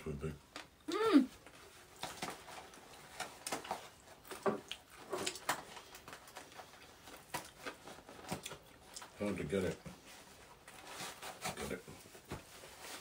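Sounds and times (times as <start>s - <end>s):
chewing and mouth noises: 0.8s - 9.8s.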